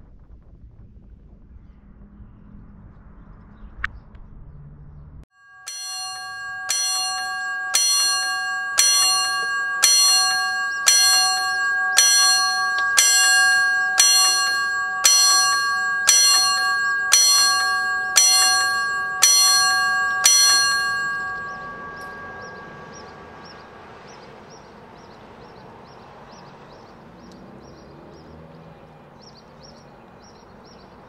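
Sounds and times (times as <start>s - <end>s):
bell ringing: 5.4s - 25.5s.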